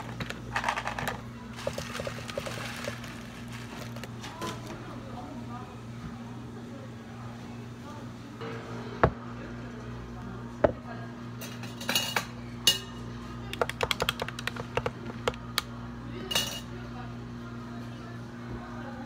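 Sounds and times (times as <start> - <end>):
plastic cups and ice clinking: 0.0 - 4.8
cafe equipment hum: 0.0 - 19.0.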